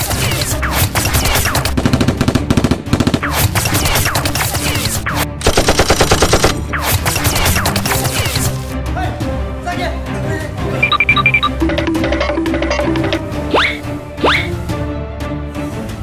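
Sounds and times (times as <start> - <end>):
automatic gunfire sound effects: 5.4 - 8.1.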